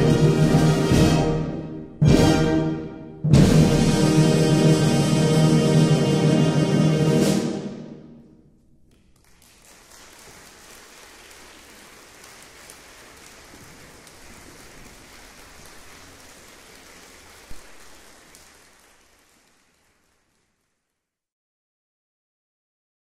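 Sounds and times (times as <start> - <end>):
audience applauding: 9.0 - 20.9.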